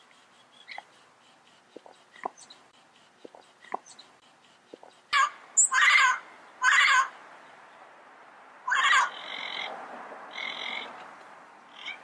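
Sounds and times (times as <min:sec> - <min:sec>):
parrot squawking: 0:04.8 - 0:07.2, 0:08.6 - 0:09.7, 0:10.3 - 0:10.9, 0:11.7 - 0:12.0.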